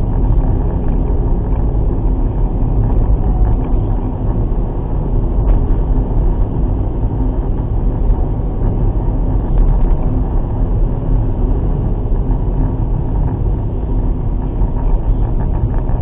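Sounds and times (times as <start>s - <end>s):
in-car engine and tyre rumble: 0.0s - 16.0s.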